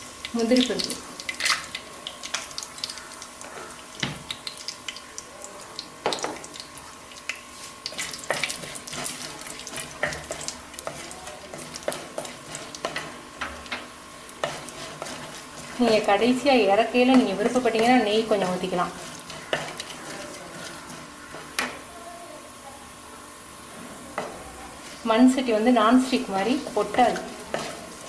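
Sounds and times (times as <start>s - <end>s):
oil crackling and popping: 0.0s - 16.2s, 17.2s - 21.7s
seeds sizzling in hot oil: 0.0s - 21.9s, 23.4s - 28.0s
wooden spatula stirring: 7.6s - 21.7s, 26.0s - 28.0s.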